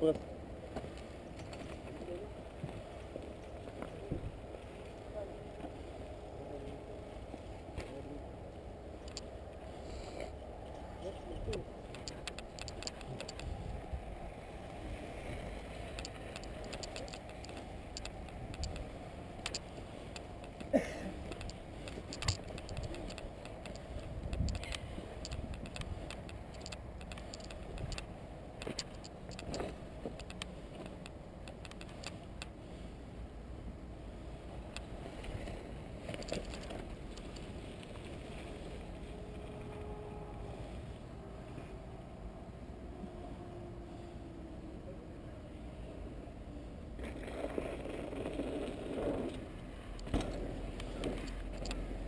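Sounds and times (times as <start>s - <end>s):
wind rumble: 0.3s - 32.5s
irregular clicks: 9.0s - 9.3s, 11.5s - 13.6s, 15.9s - 32.5s, 36.1s - 37.5s, 49.3s - 51.9s
camera handling noise: 11.5s - 13.6s, 15.9s - 32.5s, 36.1s - 37.5s.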